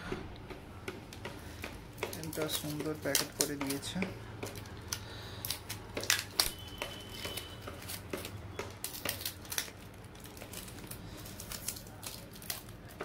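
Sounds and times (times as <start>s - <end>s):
cling film crinkling: 1.1s - 13.0s.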